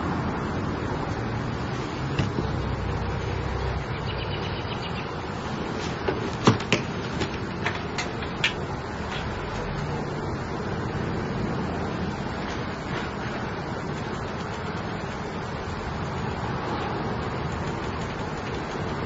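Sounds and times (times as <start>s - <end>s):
sharp clicks and knocks: 6.0s - 10.0s, 17.2s - 19.0s.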